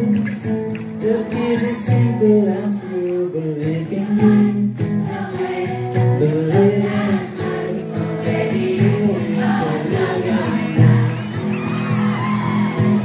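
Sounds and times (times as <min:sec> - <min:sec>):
acoustic guitar: 0:00.0 - 0:13.0.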